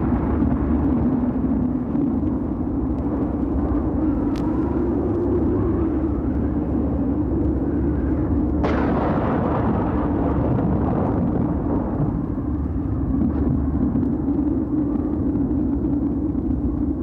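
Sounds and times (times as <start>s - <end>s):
storm wind rumbling: 0.0s - 17.0s.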